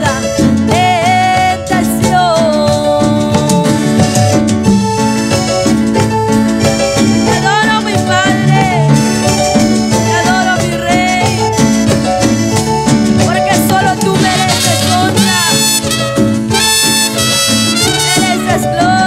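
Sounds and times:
bass line: 0:00.0 - 0:19.0
wavering lead melody: 0:04.0 - 0:18.8.

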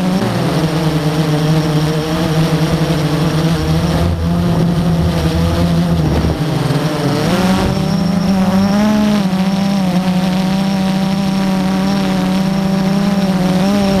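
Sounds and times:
drone propellers whining: 0:00.4 - 0:14.0
wind buffeting microphone: 0:02.5 - 0:08.9.

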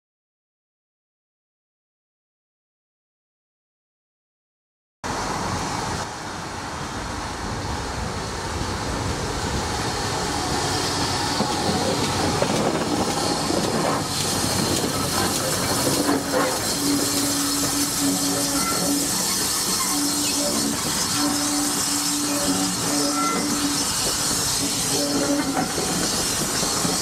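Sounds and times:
train wheels on rails: 0:05.1 - 0:27.0
steam hiss: 0:06.7 - 0:27.0
steady squeal: 0:10.2 - 0:27.0.

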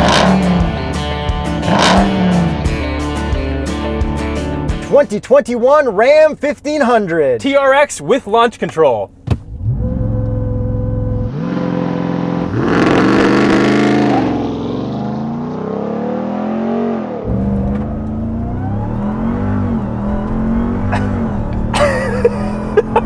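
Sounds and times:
truck engine at full throttle: 0:00.0 - 0:04.8, 0:09.5 - 0:23.0.

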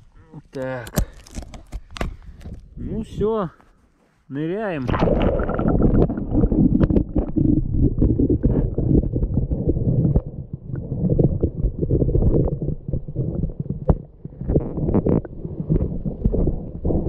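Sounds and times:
underwater bubbling: 0:04.8 - 0:17.0.

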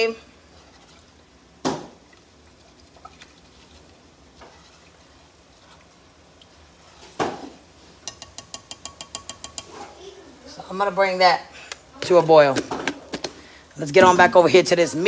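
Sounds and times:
faint stirring clicks: 0:02.0 - 0:07.0, 0:08.0 - 0:09.8
spoon knocking on saucepan: 0:08.0 - 0:09.8.

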